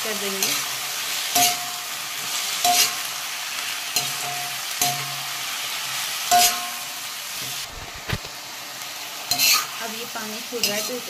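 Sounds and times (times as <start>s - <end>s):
vegetables sizzling in oil: 0.0s - 11.0s
spatula scraping a metal pan: 1.3s - 3.1s, 5.8s - 8.0s, 9.3s - 9.8s, 10.6s - 11.0s.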